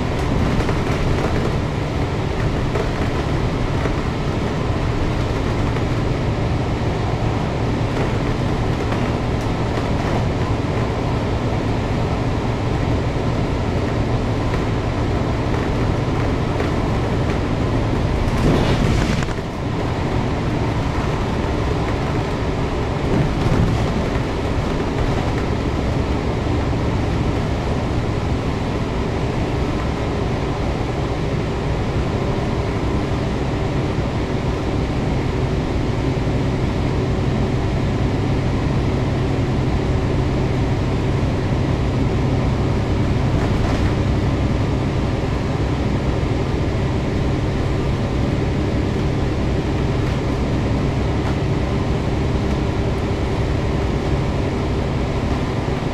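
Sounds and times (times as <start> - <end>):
bus diesel engine droning: 0.0 - 55.9
tyre and road noise: 0.0 - 55.9.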